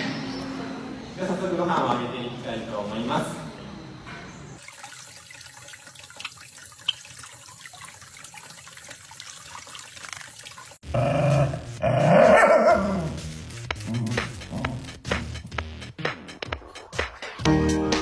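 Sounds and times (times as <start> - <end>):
tap water running: 4.6 - 10.8
dog barking loudly: 12.0 - 13.0.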